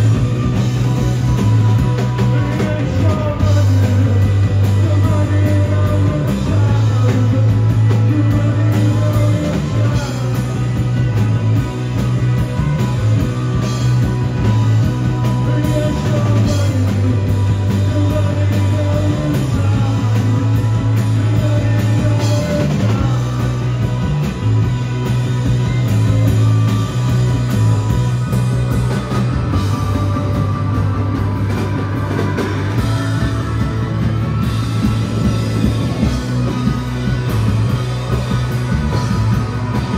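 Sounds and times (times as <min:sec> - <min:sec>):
drums: 0:00.0 - 0:39.9
electric guitars: 0:00.0 - 0:39.9
heavy bass line: 0:00.0 - 0:39.9
male lead vocal: 0:02.0 - 0:11.5, 0:14.4 - 0:24.1.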